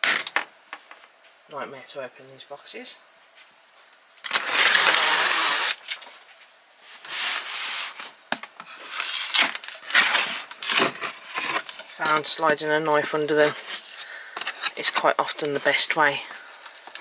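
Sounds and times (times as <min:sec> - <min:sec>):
cardboard rubbing and scraping: 0:06.9 - 0:16.1.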